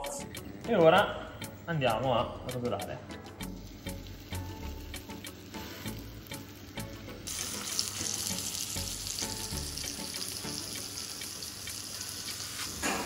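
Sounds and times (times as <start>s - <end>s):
meat sizzling in a pan: 3.4s - 13.0s.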